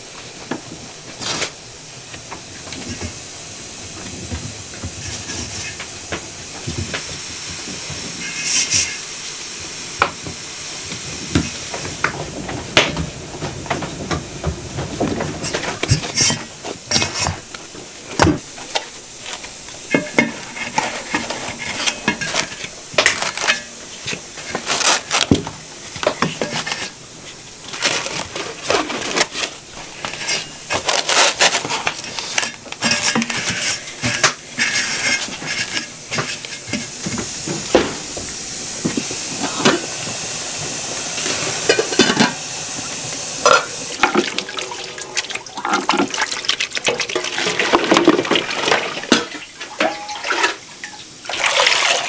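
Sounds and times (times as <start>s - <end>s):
cling film crinkling: 20.7s - 35.6s.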